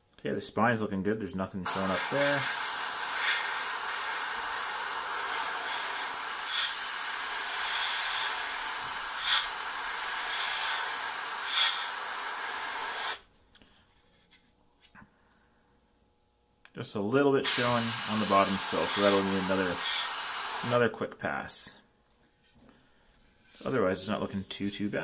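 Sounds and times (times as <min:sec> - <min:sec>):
airbrush hissing: 0:01.7 - 0:13.2, 0:17.5 - 0:20.7.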